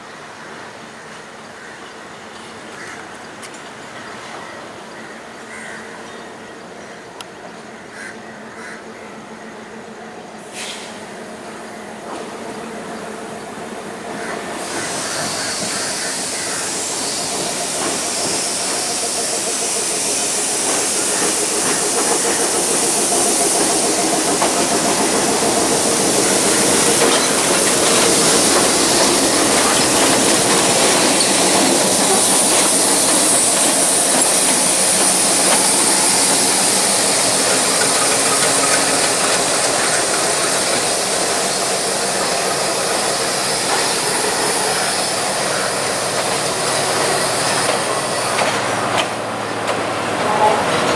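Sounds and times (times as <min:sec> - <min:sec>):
train wheels on rail: 0:00.0 - 0:50.9
diesel train engine running: 0:06.3 - 0:50.9
hiss: 0:10.3 - 0:50.9.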